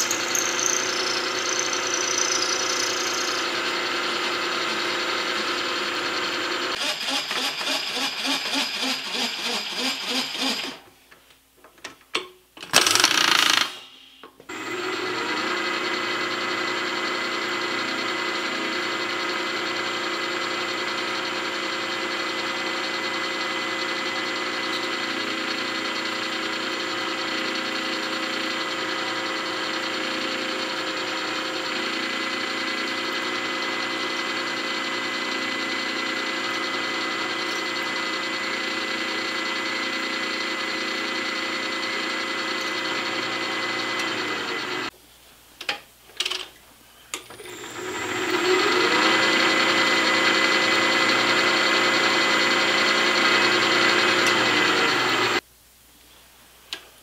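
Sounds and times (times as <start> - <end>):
milling machine running: 0.0 - 6.9, 14.5 - 44.9, 47.4 - 55.4
drill bit cutting aluminium: 0.0 - 10.8, 12.8 - 13.9, 28.8 - 44.9, 47.5 - 55.4.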